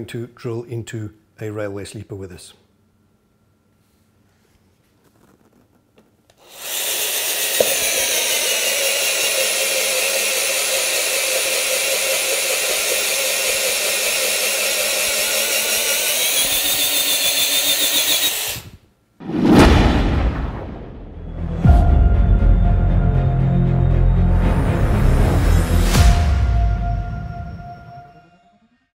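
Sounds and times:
drill boring into wood: 6.4 - 18.8
loud music: 20.8 - 28.1.

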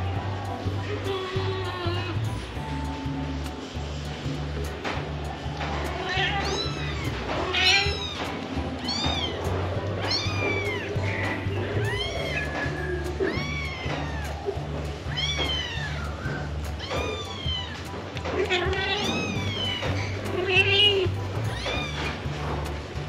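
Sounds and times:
background music with low beat: 0.0 - 23.0
kittens mewing: 5.2 - 22.4.

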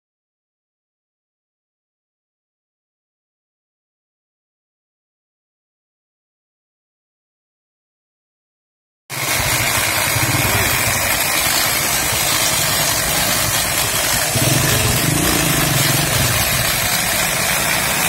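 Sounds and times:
electric motor running: 9.2 - 18.0.

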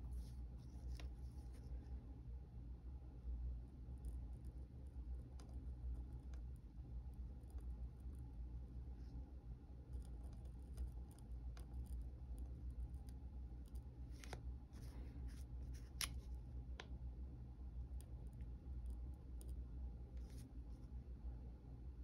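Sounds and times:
low steady hum: 0.0 - 22.0
pen nib scratching on paper: 9.9 - 13.9.

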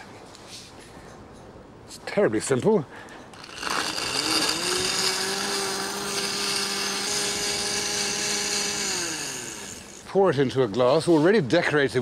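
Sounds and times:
blender motor churning ice: 3.4 - 10.1.

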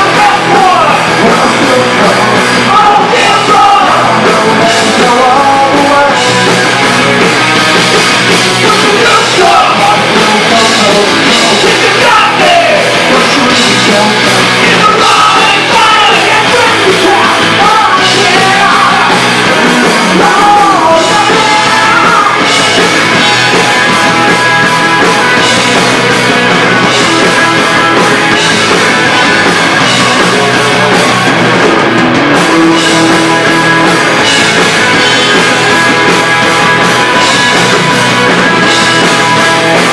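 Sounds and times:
bass guitar: 0.0 - 39.9
drum kit: 0.0 - 39.9
electric guitars: 0.0 - 39.9.

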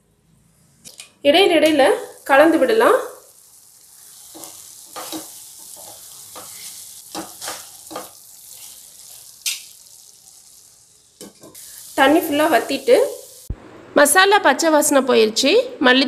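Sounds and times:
potatoes sizzling in pan: 1.3 - 13.5
spatula scraping pan: 4.1 - 9.7.

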